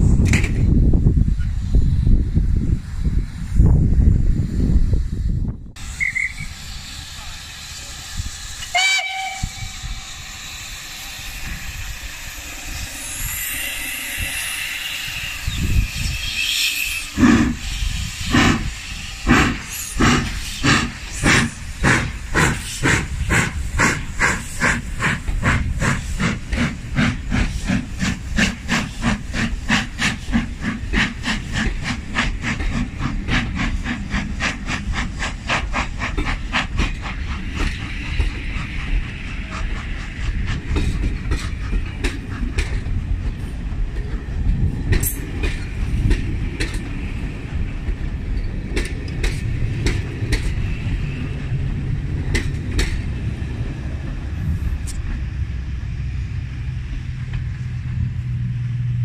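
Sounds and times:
steam locomotive exhaust chuffs: 0.0s - 59.0s
short steam whistle: 5.8s - 7.0s, 8.6s - 10.2s, 12.4s - 17.9s
steam hissing: 5.8s - 57.6s.

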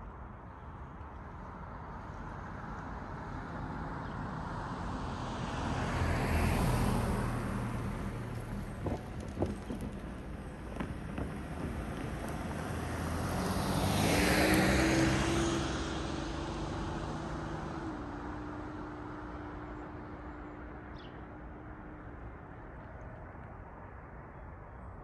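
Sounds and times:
car driving past: 5.4s - 20.3s.

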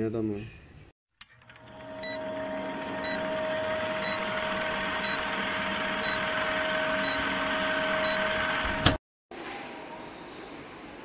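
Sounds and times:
film projector whirring rattle: 1.2s - 9.0s.

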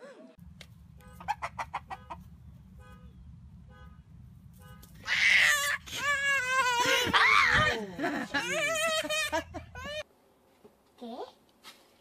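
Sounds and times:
low steady rumble: 0.4s - 6.8s
chicken clucking: 1.0s - 2.3s.

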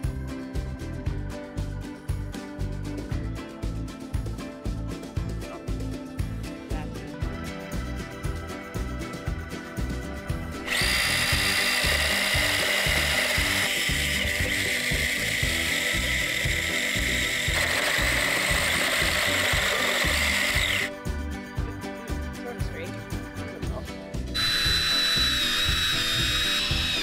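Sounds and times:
background music with a beat: 0.0s - 27.0s
electric chainsaw cutting wood: 10.3s - 21.0s, 24.3s - 27.0s.

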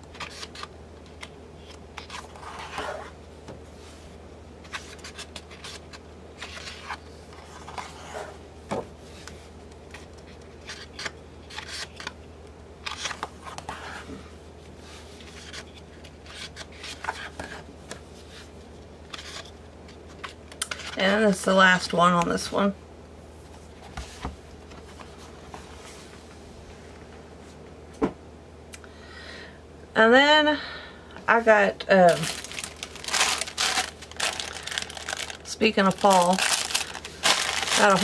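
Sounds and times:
steady low hum: 0.0s - 38.0s
paper pages rustling: 4.6s - 8.2s, 12.8s - 14.0s, 32.1s - 38.0s.

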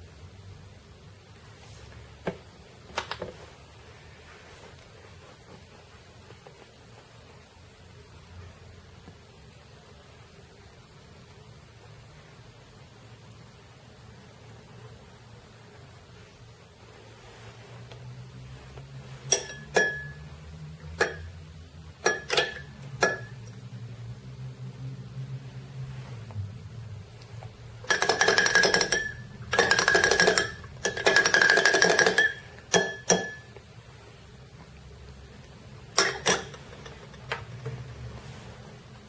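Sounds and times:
metal spoon clinking on glass: 19.3s - 20.2s, 22.0s - 23.4s, 27.9s - 33.5s, 36.0s - 36.6s
spoon rattling in glass: 27.9s - 33.5s.

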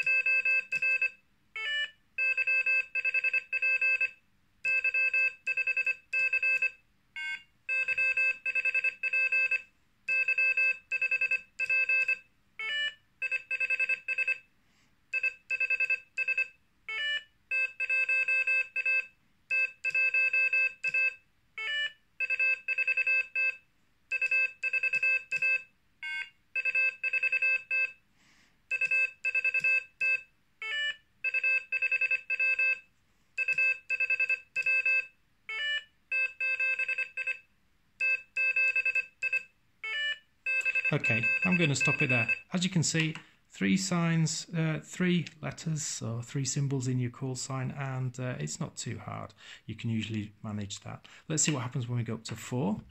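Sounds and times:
morse code beeps: 0.0s - 14.4s, 15.2s - 28.0s, 28.7s - 32.8s, 33.4s - 37.4s, 38.0s - 43.1s
paddle keyed morse sidetone: 38.0s - 43.2s.

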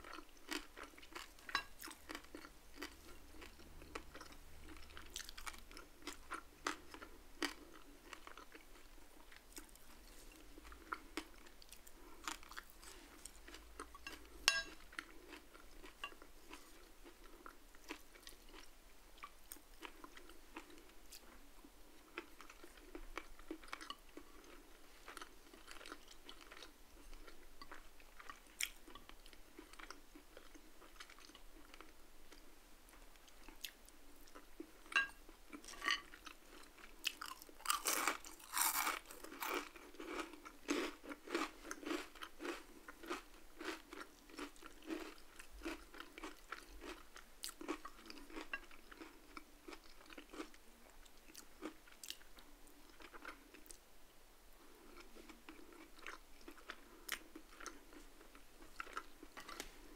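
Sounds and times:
person crunching crispy food: 0.0s - 8.6s, 35.0s - 50.5s.

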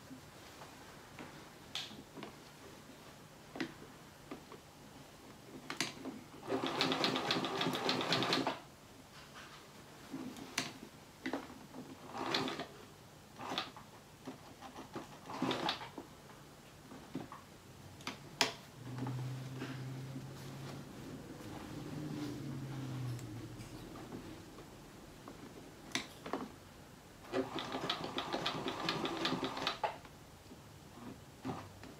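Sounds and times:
sewing machine clicks: 5.7s - 8.6s, 12.1s - 12.7s, 15.0s - 15.9s, 27.3s - 30.0s
sewing machine stitching: 6.4s - 8.6s, 12.0s - 12.8s, 13.4s - 15.9s, 27.2s - 30.0s.

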